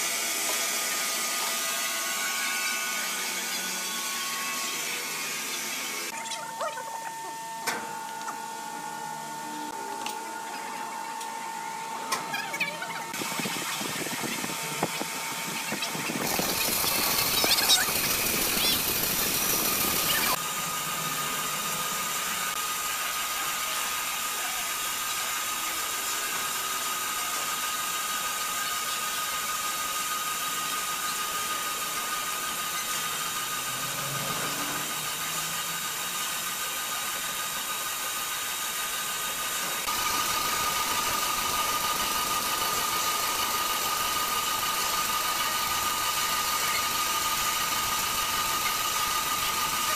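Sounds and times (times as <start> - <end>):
band saw cutting timber: 0.0 - 6.9, 12.6 - 49.9
machine humming with high whine: 0.0 - 49.9
saw blade squeals: 15.7 - 20.4.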